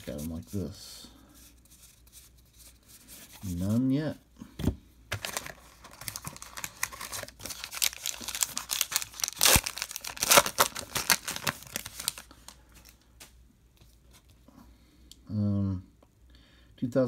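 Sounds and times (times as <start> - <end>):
plastic wrapper crinkling: 5.1 - 13.0.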